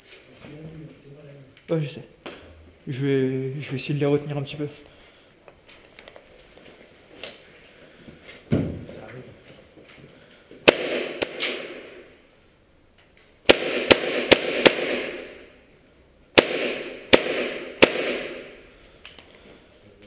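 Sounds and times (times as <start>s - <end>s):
airsoft gun shots echoing: 10.6s - 12.1s, 13.4s - 15.5s, 16.4s - 18.6s.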